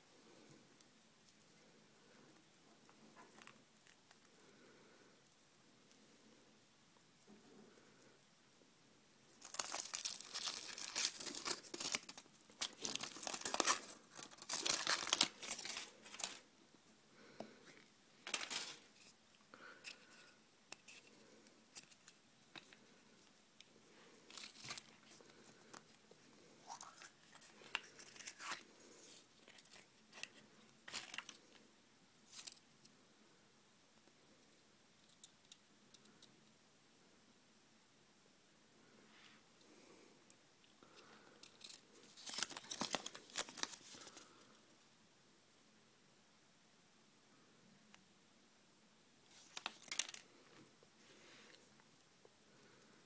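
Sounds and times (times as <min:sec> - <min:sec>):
foil wrapper crinkling: 0:09.4 - 0:16.4, 0:18.2 - 0:18.9, 0:24.3 - 0:25.3, 0:29.4 - 0:31.6, 0:41.4 - 0:44.3, 0:49.3 - 0:50.2.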